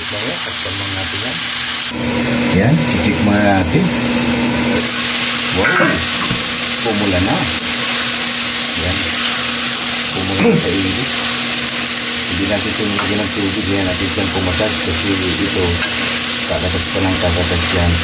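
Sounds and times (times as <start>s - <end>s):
food sizzling in hot oil: 0.0s - 18.0s
metal spatula scraping wok: 7.7s - 8.4s, 14.6s - 16.5s.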